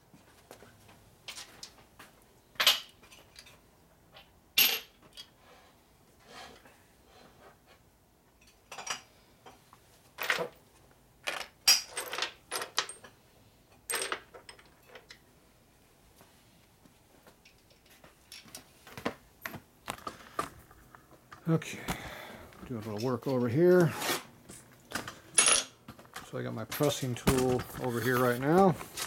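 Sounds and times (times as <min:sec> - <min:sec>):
metal tools clinking on workbench: 0:24.5 - 0:29.0.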